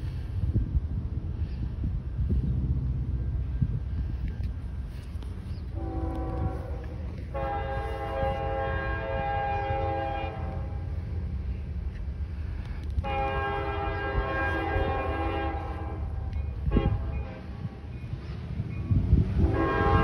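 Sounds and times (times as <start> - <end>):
low rumble: 0.0 - 20.0
locomotive air horn: 5.7 - 11.2, 12.9 - 17.8, 19.4 - 20.0.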